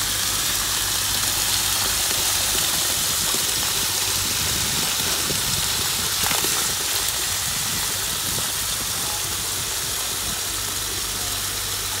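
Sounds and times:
grout gushing from hose: 0.0 - 12.0
pump engine hum: 0.0 - 12.0.

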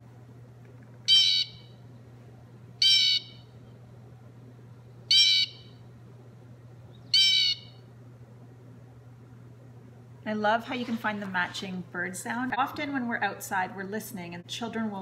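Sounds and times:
recorded blue jay calls: 1.1 - 1.7, 2.8 - 3.5, 5.1 - 5.8, 6.9 - 7.8.

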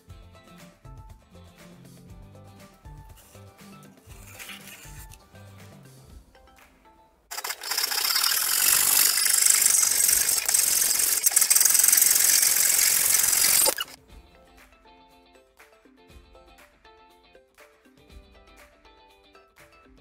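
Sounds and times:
soft background music: 0.0 - 7.3
belt sander grinding wood: 7.3 - 14.0.

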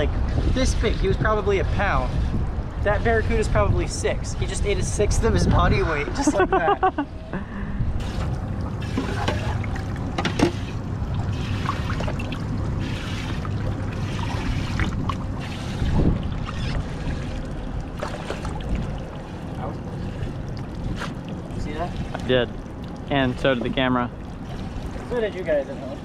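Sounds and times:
water sloshing and trickling: 0.0 - 5.0, 8.0 - 26.0
steady low rumble: 0.0 - 26.0
net scooping through water: 8.0 - 21.3
small splashes and knocks: 8.0 - 25.2.

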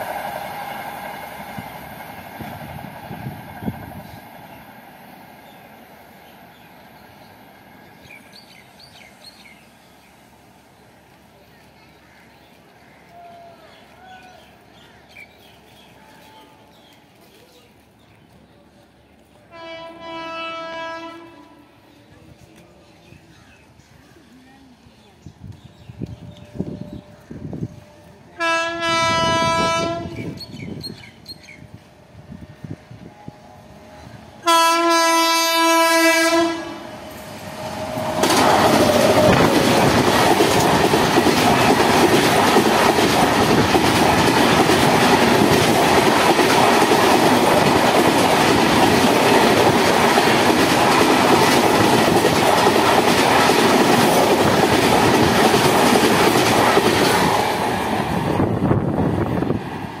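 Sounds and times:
train horn: 19.4 - 21.8, 26.3 - 30.4, 32.3 - 39.4
train wheels clattering over rails: 37.1 - 58.6.

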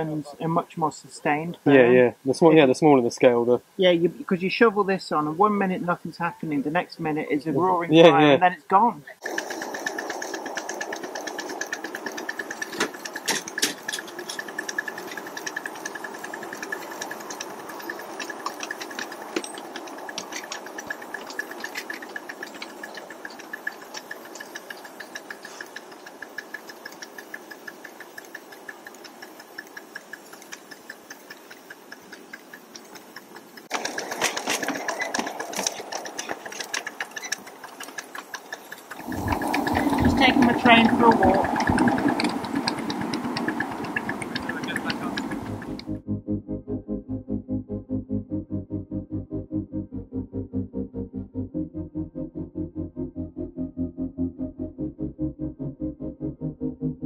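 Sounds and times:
steady high steam hiss: 0.0 - 45.8
rhythmic locomotive clatter: 2.5 - 46.0.

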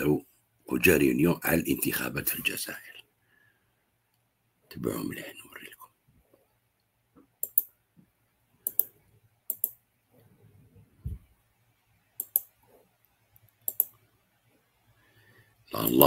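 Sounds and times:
computer mouse double clicks: 9.5 - 9.8, 12.2 - 12.5, 13.6 - 14.0
soft low thump: 11.0 - 11.3.

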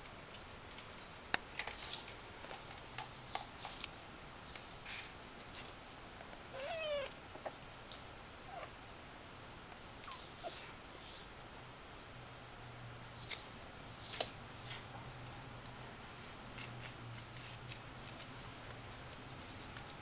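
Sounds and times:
light clicks and scratches: 0.7 - 6.0, 10.0 - 12.1, 13.1 - 20.0
kitten mewing: 6.5 - 7.1
kitten squeaks: 6.6 - 7.1.

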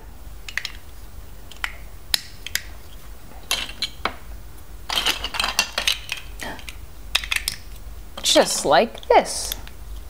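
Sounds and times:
plastic bricks clicking together: 0.5 - 0.8, 4.9 - 7.7.

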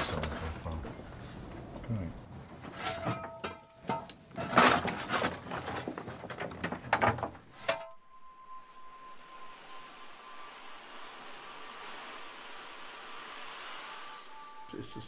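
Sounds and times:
metal tools clanking and scraping: 2.6 - 8.0
faint steady hiss: 7.5 - 15.0
thin high tone: 7.6 - 15.0.

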